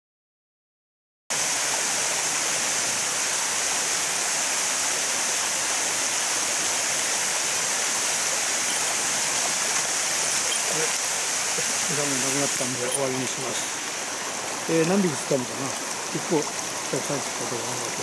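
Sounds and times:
water pouring over weir: 8.0s - 18.0s.

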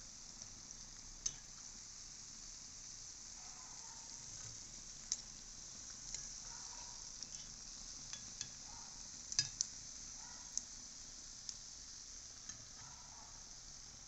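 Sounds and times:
oil sizzling in a pan: 0.0s - 14.0s
metal spoon clicking on pan: 1.2s - 1.5s, 8.1s - 8.6s, 9.3s - 9.7s.

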